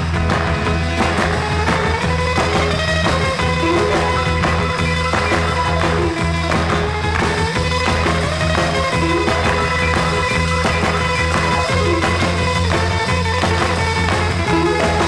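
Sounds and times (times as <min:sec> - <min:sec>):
rock music with guitar and bass: 0:00.0 - 0:15.0.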